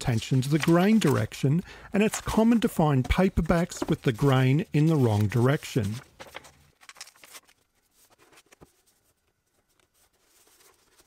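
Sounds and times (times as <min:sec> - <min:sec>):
paper rustling: 0:00.0 - 0:11.0.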